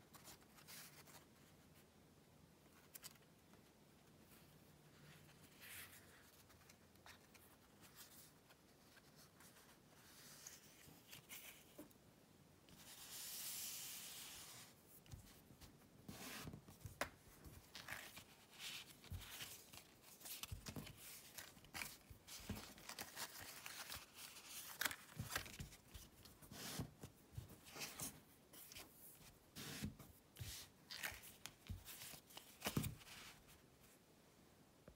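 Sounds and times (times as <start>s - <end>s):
paper rustling: 12.8s - 33.6s.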